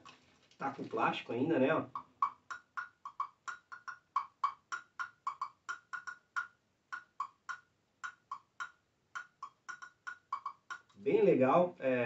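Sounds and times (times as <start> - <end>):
percussion blocks tapped: 1.8 - 11.0.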